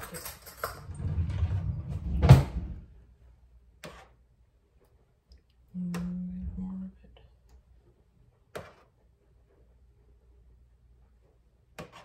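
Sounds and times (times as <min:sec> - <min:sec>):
rough scraping rumble: 0:00.8 - 0:03.0.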